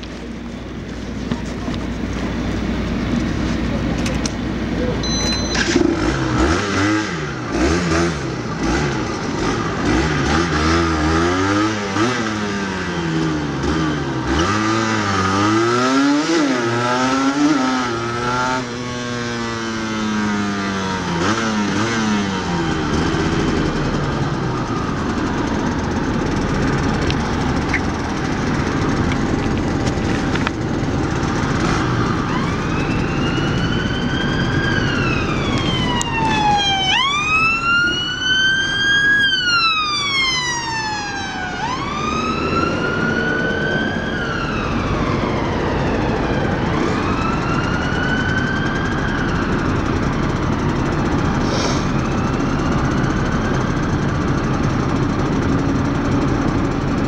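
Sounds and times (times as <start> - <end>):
traffic noise: 0.0 - 57.0
motorcycle engine revving: 5.3 - 38.8
siren rising: 31.2 - 54.5.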